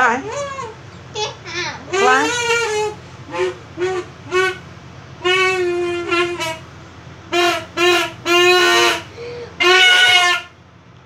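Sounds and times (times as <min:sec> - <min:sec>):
duck call blasts: 0:01.9 - 0:10.6.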